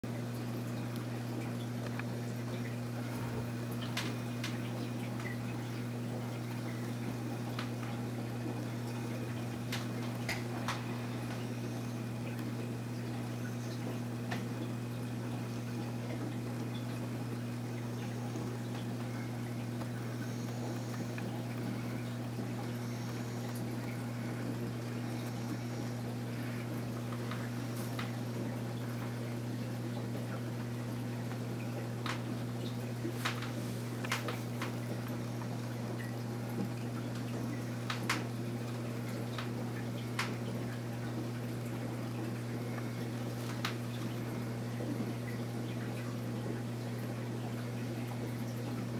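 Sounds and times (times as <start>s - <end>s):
filter pump humming: 0.0s - 48.9s
water trickling and bubbling: 0.1s - 48.9s
faint clicks: 32.0s - 38.3s.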